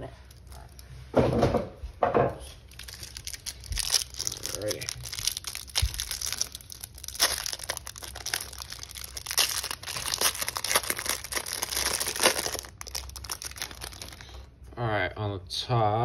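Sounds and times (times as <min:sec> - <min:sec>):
plastic wrapper crinkling and tearing: 0:00.2 - 0:00.9, 0:02.6 - 0:14.6.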